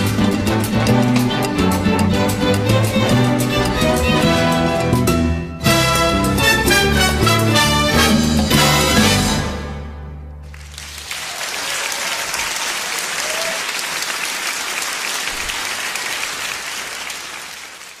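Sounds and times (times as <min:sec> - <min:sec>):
audience applauding: 0:10.4 - 0:18.0.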